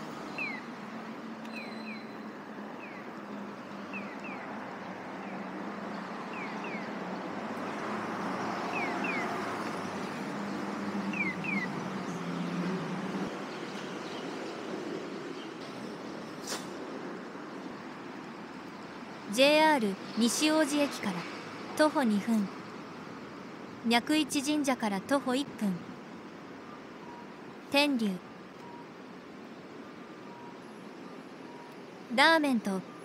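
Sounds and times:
street traffic: 0.0 - 33.0
bird chirping: 0.3 - 0.8, 1.4 - 7.2, 8.7 - 9.4, 10.1 - 12.6
vehicle passing: 3.4 - 14.0.

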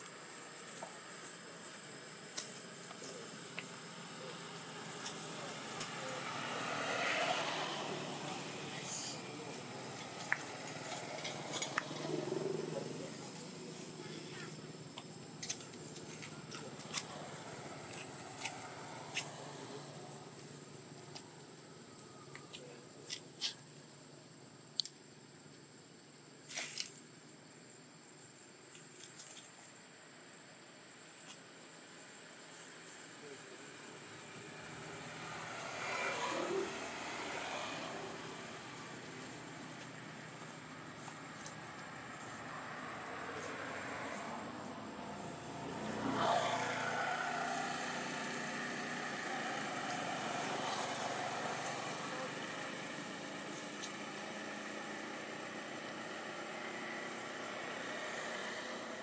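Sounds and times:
low steady hiss: 0.0 - 59.0
motor vehicle engine passing: 2.7 - 14.8, 16.0 - 20.6, 34.2 - 59.0.

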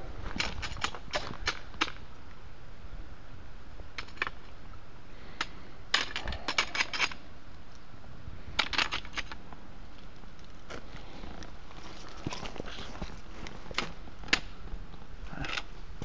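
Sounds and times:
footsteps on stony ground: 9.9 - 14.1.

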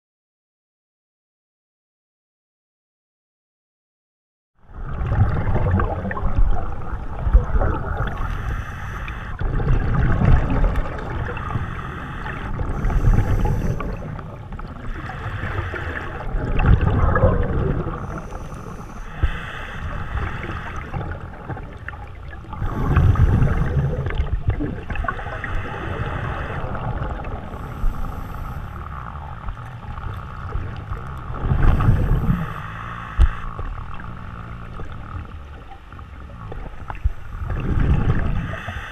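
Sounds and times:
exhaled bubbles rumbling underwater: 4.6 - 38.9
faint regulator hiss: 7.9 - 9.4, 11.2 - 16.2, 17.9 - 38.9.

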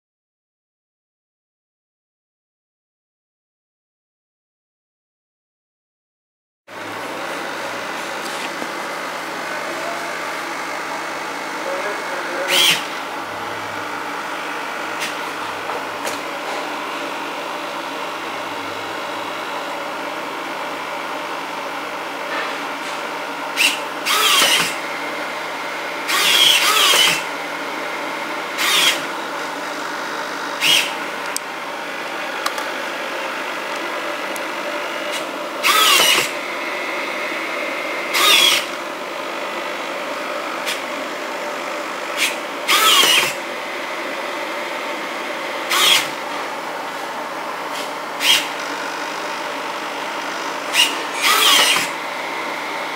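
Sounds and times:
servo motors whirring: 11.7 - 13.9, 23.6 - 24.8, 26.1 - 27.3, 28.6 - 29.1, 30.6 - 31.0, 35.1 - 36.4, 38.1 - 38.8, 42.2 - 43.4, 45.7 - 46.2, 47.7 - 49.2, 50.3 - 52.6.

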